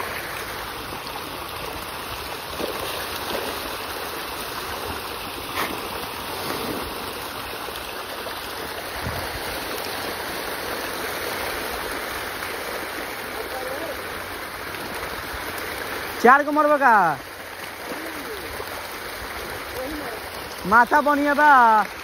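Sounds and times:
fish splashing at water surface: 0.0s - 16.3s, 17.2s - 20.7s
sharp water slap: 5.4s - 7.5s.

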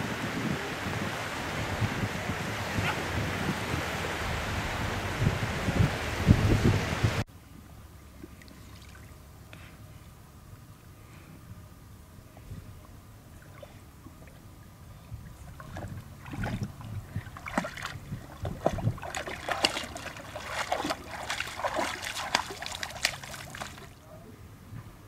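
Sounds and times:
dog splashing through water: 15.5s - 24.0s.

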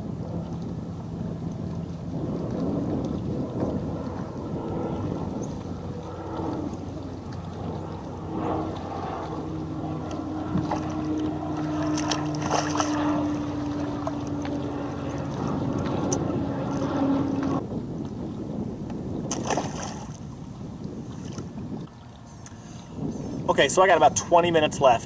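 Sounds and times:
water sloshing against hull: 0.0s - 24.5s
steady low hum: 0.0s - 25.0s
fish splashing into water: 10.6s - 14.6s, 19.3s - 20.3s
hand splashing in water: 11.8s - 13.1s.

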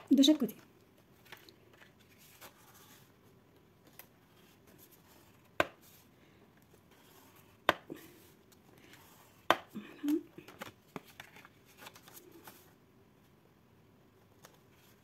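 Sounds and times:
faint handling sounds: 0.2s - 13.4s.

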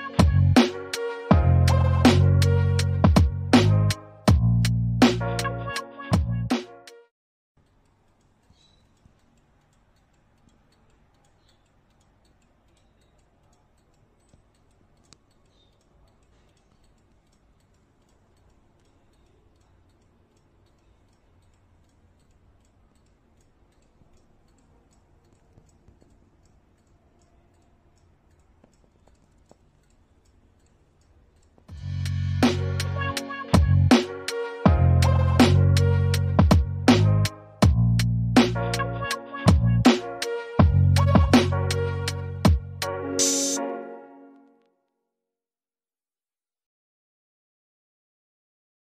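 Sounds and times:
clock ticking: 7.6s - 31.8s, 32.4s - 43.6s.

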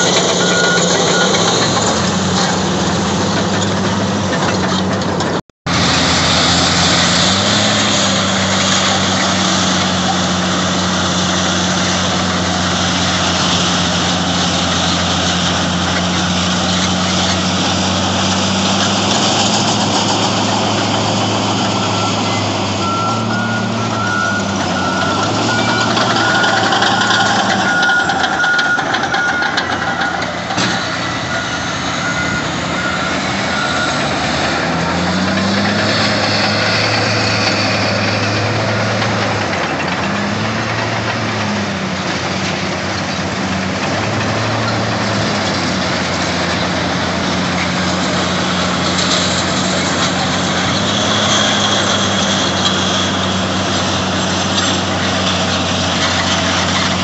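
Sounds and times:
backup alarm beeping: 0.0s - 1.8s
heavy diesel engines under load: 0.0s - 57.0s.

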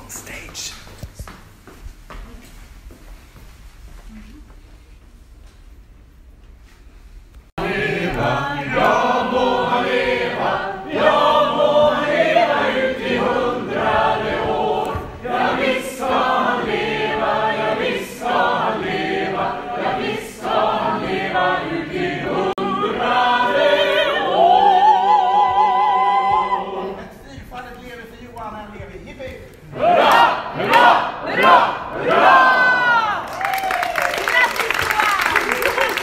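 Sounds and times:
choir singing: 7.6s - 27.2s, 29.6s - 33.2s.

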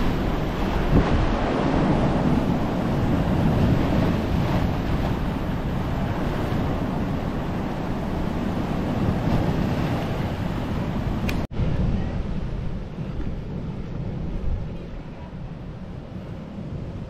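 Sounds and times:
surf breaking over rocks: 0.0s - 11.8s
wind buffeting microphone: 0.0s - 17.0s.

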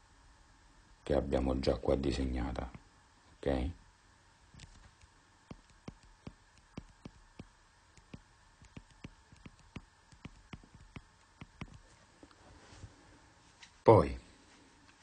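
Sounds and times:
stylus tapping on touchscreen: 4.6s - 11.9s.

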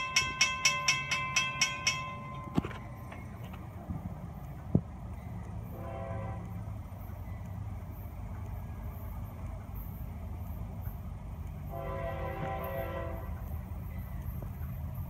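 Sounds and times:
low train rumble: 0.0s - 15.0s
train air horn blast: 5.7s - 6.6s, 11.7s - 13.4s.

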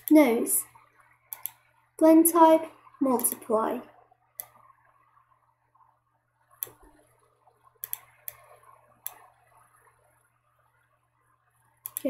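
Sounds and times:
faint low hum: 0.0s - 12.0s
mouse and keyboard clicks: 1.3s - 1.6s, 3.2s - 3.4s, 7.8s - 9.3s.

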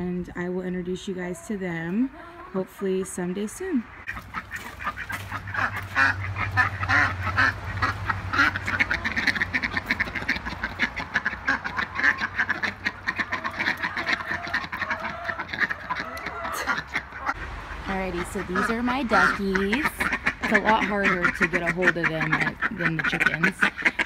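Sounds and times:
ducks quacking: 0.9s - 24.0s.

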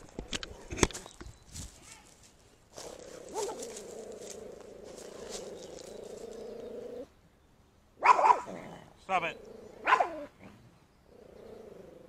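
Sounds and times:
dog growling: 2.9s - 7.1s, 8.4s - 12.0s
dog barking loudly: 3.3s - 3.6s, 8.0s - 8.5s, 9.8s - 10.3s.

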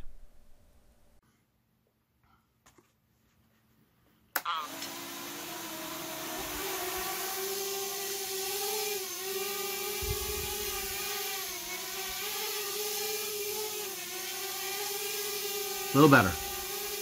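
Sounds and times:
quadcopter motors whining: 4.5s - 17.0s.

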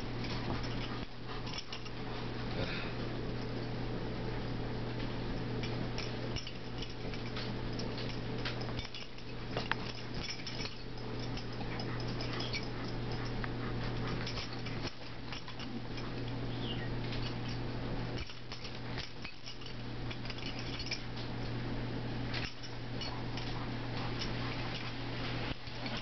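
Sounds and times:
paws clicking on floor: 0.0s - 3.7s, 4.3s - 21.5s, 22.3s - 26.0s
low hum: 0.0s - 26.0s
puppies scuffling: 22.3s - 26.0s.

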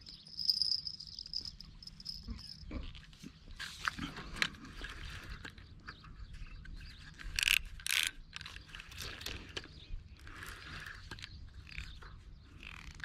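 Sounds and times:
fishing reel clicking: 7.2s - 9.0s, 10.2s - 12.0s, 12.6s - 13.0s.

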